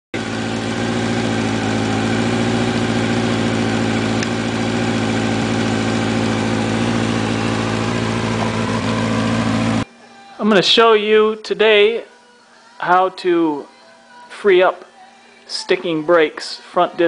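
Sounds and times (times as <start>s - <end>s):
motorcycle engine idling: 0.2s - 9.9s.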